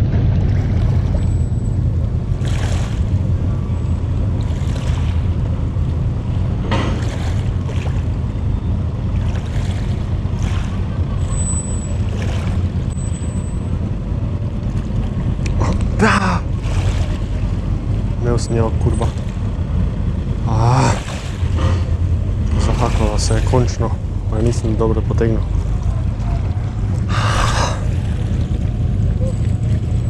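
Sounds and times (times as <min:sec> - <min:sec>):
steady low rumble: 0:00.0 - 0:30.0.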